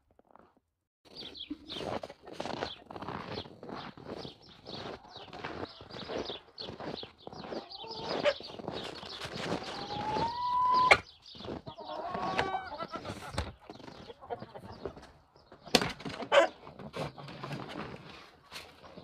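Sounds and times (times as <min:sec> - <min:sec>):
footsteps in snow: 0:01.1 - 0:15.2
chickens clucking: 0:01.1 - 0:19.0
plastic buckets clattering: 0:15.0 - 0:18.8.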